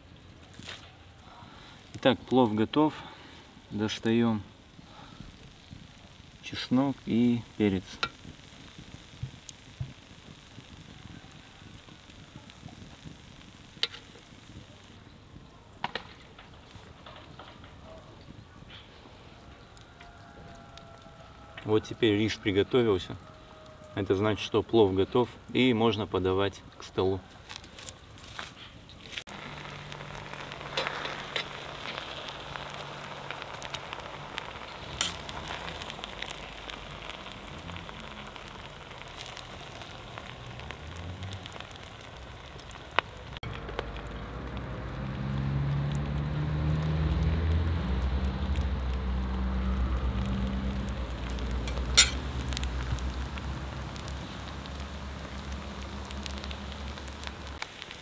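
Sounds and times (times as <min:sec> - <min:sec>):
food hissing and fire crackling: 0:00.0 - 0:58.0
metal skimmer scraping pot: 0:51.7 - 0:52.2.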